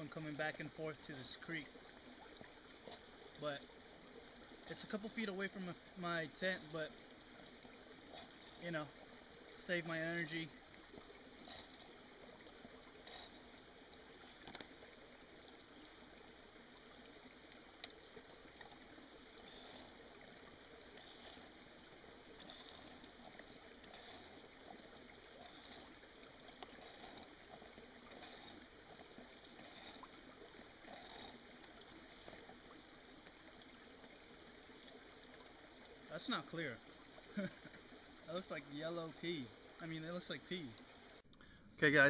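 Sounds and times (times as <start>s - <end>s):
creek trickling: 0.0s - 42.0s
hand pump strokes: 25.4s - 26.0s, 26.6s - 27.3s, 29.6s - 30.1s.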